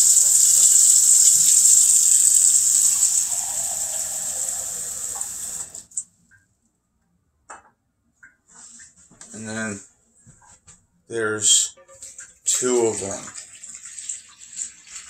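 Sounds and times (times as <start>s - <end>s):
water filling a glass cup: 0.0s - 5.9s
faucet running water: 0.0s - 6.0s, 12.0s - 15.0s.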